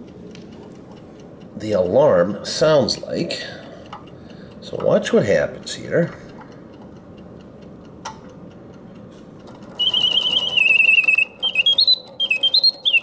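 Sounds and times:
faint clock ticking: 0.0s - 12.9s
mechanical bird whistle trilling: 9.7s - 13.0s.

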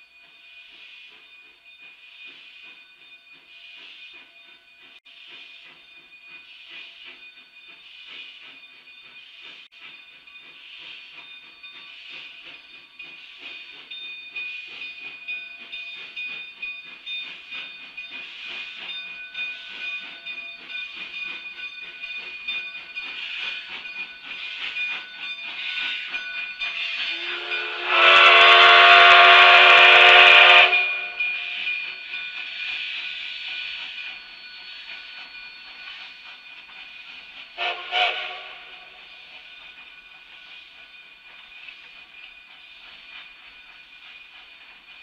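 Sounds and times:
steam locomotive exhaust beating: 0.2s - 45.0s
steam whistle blast: 27.0s - 31.2s, 37.6s - 39.0s.

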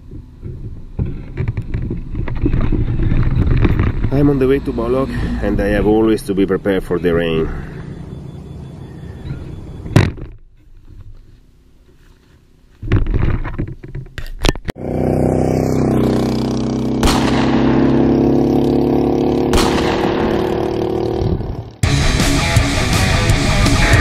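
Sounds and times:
loud steady drone: 14.8s - 24.0s.

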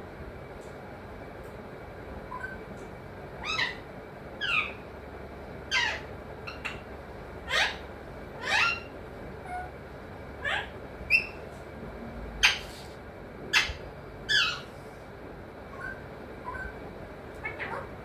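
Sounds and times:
parakeet harsh calls: 3.4s - 4.8s, 5.7s - 9.7s, 10.4s - 11.4s, 12.4s - 12.8s, 13.5s - 14.7s.

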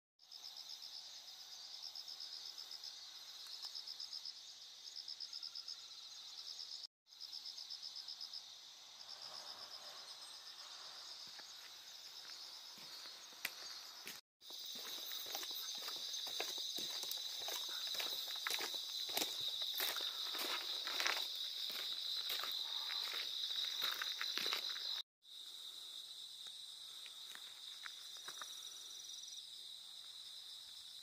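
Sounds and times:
crickets chirping: 0.2s - 31.0s.

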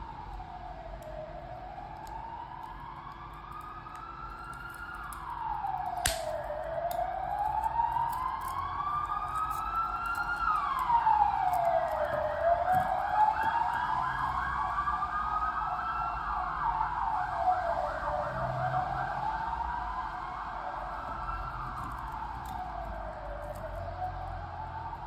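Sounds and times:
siren wailing: 0.0s - 25.0s
watch bracelet clicks: 5.8s - 7.4s.

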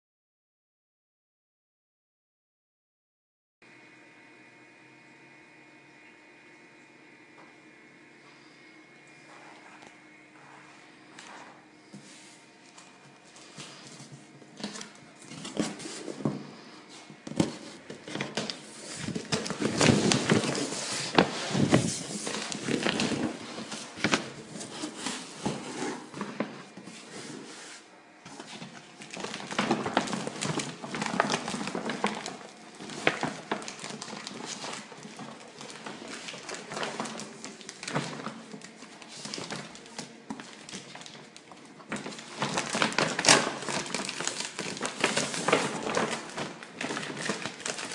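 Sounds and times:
cardboard carton being opened: 17.3s - 27.5s.

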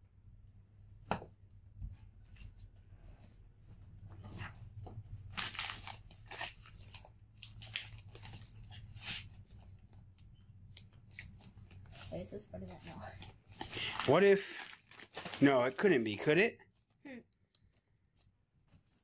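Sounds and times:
plastic chip bag crinkling: 5.2s - 9.0s, 13.2s - 17.0s.

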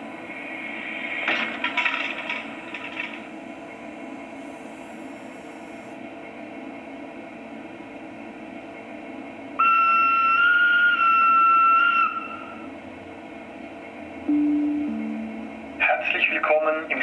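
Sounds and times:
low electric running hum: 0.0s - 17.0s
single-note locomotive horn: 14.3s - 15.7s.

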